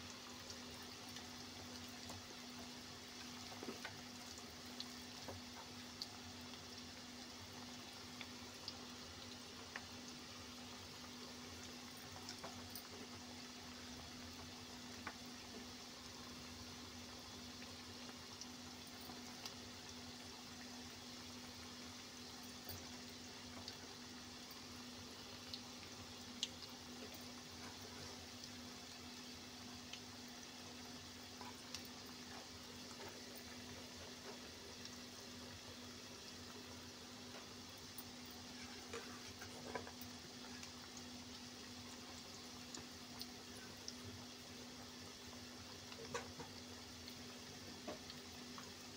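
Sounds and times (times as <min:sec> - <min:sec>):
deep-frying sizzle in hot oil: 0:00.0 - 0:48.9
small crackles: 0:00.1 - 0:06.8, 0:21.2 - 0:48.9.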